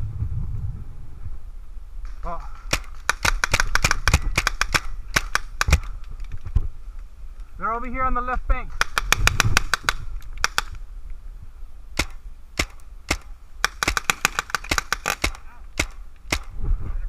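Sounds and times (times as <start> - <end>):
paintball marker firing pops: 2.6 - 6.3, 8.8 - 10.8, 12.0 - 16.6.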